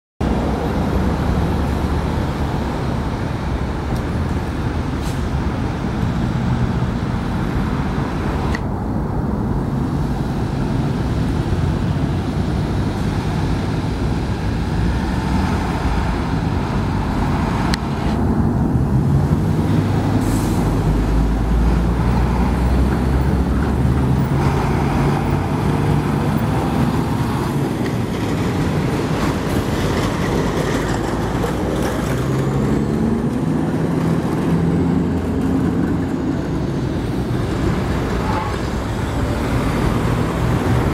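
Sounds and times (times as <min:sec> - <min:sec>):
cars passing: 0:00.2 - 0:40.9
heavy diesel trucks: 0:00.2 - 0:40.9.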